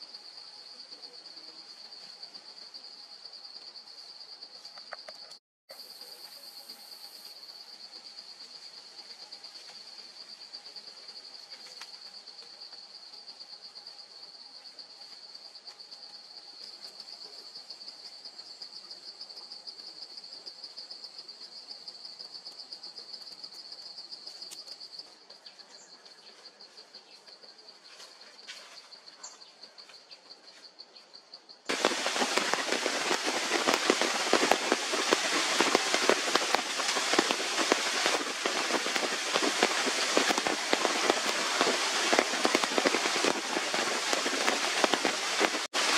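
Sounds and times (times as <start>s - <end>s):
faint forest background: 0.0s - 45.9s
high insect trill: 0.0s - 45.9s
heavy rain on foliage: 31.7s - 45.9s.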